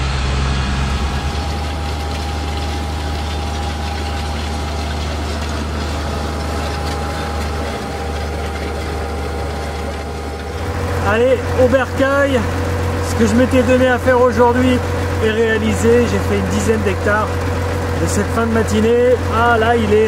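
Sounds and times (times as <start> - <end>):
high whine: 0.0 - 8.9
tractor diesel engine running: 0.0 - 20.0.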